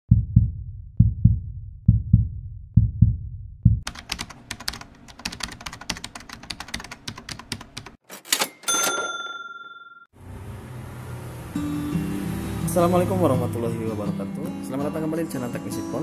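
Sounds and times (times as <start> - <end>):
ringing ding: 8.5 - 10.1.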